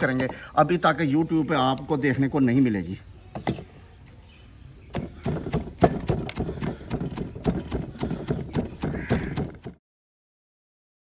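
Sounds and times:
wooden pestle pounding in mortar: 4.9 - 9.8.

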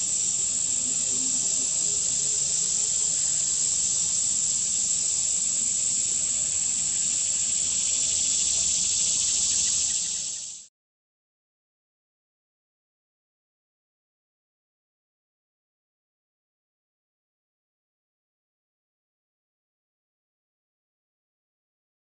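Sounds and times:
insects trilling: 0.0 - 10.7.

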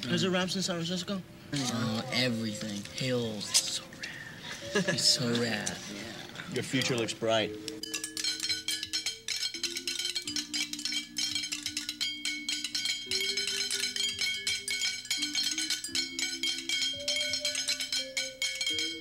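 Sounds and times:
wood-block-like percussion clicking: 6.7 - 19.0.

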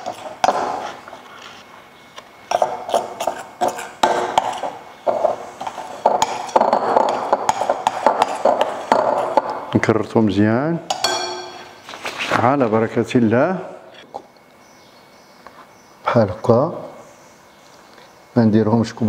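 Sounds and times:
spoon scraping ceramic bowl: 2.5 - 9.4.

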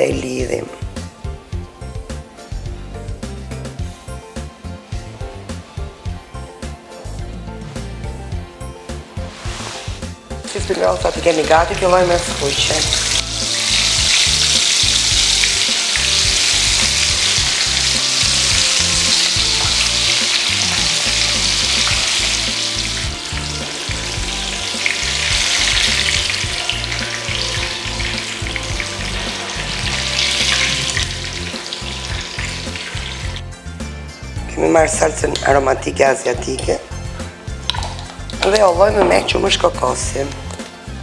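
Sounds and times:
spring rolls sizzling in hot oil: 9.2 - 33.4.

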